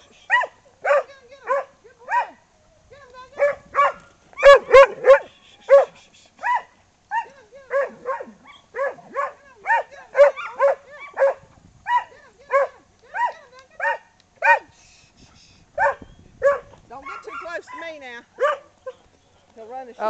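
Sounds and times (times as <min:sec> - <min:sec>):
dog barking: 0:00.3 - 0:02.4, 0:03.4 - 0:14.7, 0:15.8 - 0:19.0.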